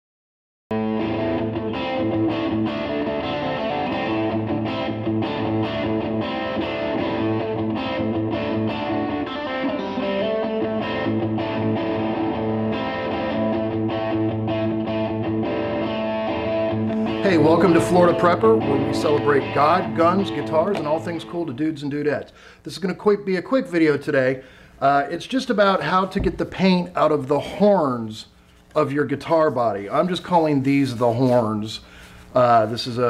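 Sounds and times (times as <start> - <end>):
distorted electric guitar chords: 0.7 - 21.5.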